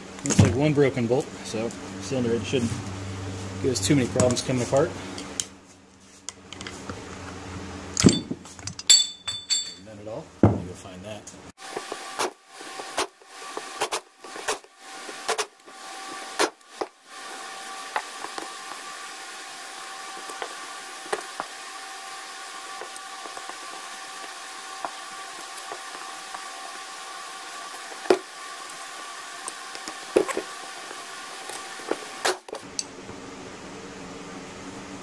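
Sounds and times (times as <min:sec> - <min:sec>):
pneumatic wrench hissing and whining: 0:11.7 - 0:32.6.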